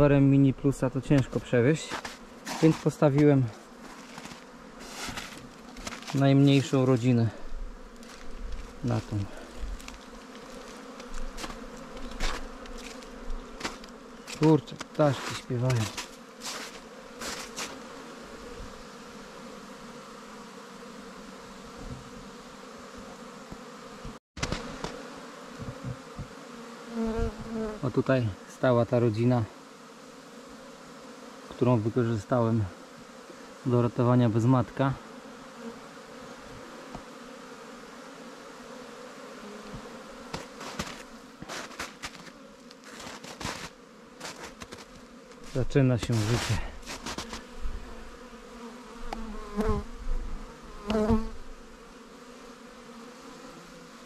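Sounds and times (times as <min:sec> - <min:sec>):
honeybees buzzing: 0:00.0 - 0:54.0
footsteps crunching on snow: 0:01.1 - 0:17.9, 0:39.7 - 0:47.9
short rustling: 0:01.9 - 0:06.4, 0:40.3 - 0:47.5.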